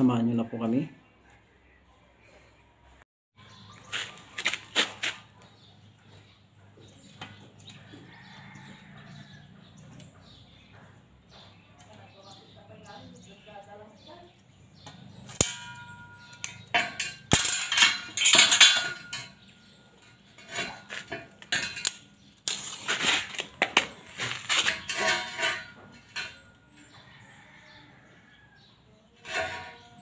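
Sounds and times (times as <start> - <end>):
scrap steel clanking: 15.1 - 27.2, 29.2 - 30.0.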